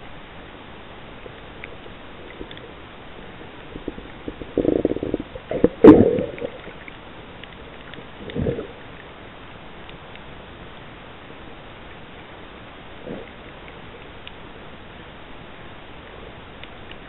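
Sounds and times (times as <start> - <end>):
steady hiss: 0.0 - 17.0
underwater bubbling: 0.9 - 10.2, 11.4 - 15.0
underwater gurgling surge: 1.7 - 7.1, 7.7 - 9.1.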